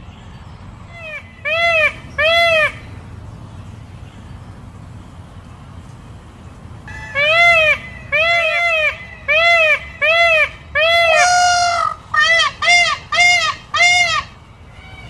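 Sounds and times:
peacock calling: 0:00.9 - 0:03.1, 0:06.8 - 0:15.0.

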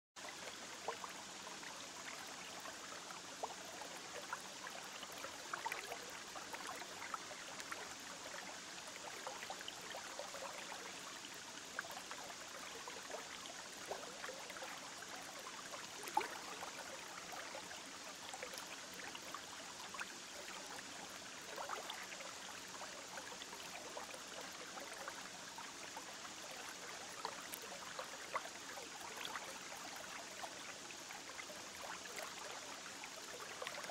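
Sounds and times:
aquarium water bubbling: 0:00.2 - 0:33.9.

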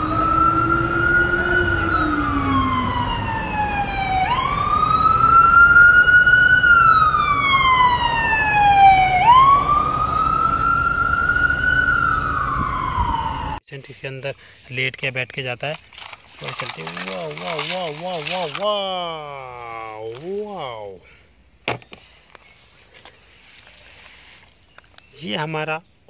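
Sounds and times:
ambulance siren wailing: 0:00.0 - 0:13.6
lower siren: 0:00.0 - 0:13.6
street traffic noise: 0:00.0 - 0:13.6.

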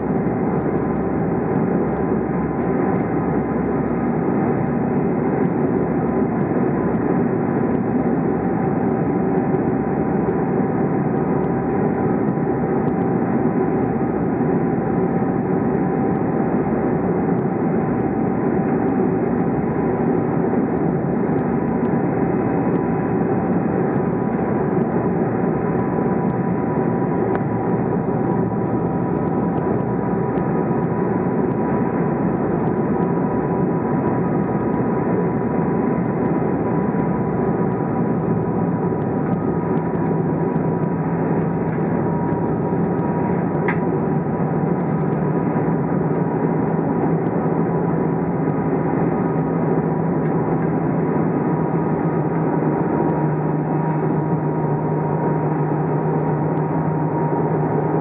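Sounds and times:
low hum: 0:00.0 - 0:58.0
turboprop engines droning: 0:00.0 - 0:58.0.

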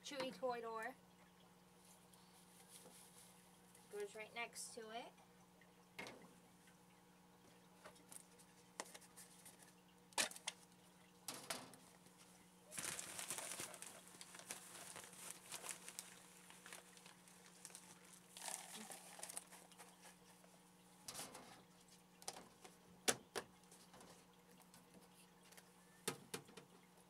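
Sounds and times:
faint steady hum: 0:00.0 - 0:27.0
rustling bedding in plastic box: 0:12.7 - 0:20.3.

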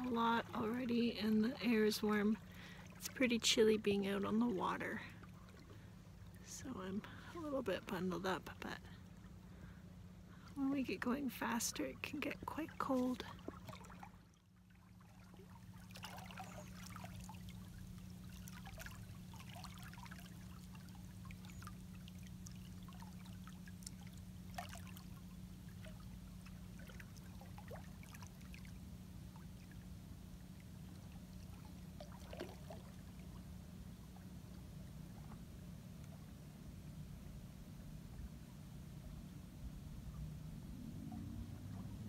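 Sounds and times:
small splashes: 0:00.0 - 0:07.4, 0:11.8 - 0:35.4
low hum: 0:00.0 - 0:42.0
water lapping against hull: 0:00.0 - 0:42.0.

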